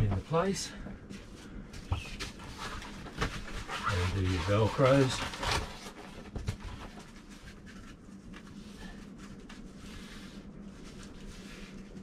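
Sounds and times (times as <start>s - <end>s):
velcro straps scratching: 3.6s - 5.8s.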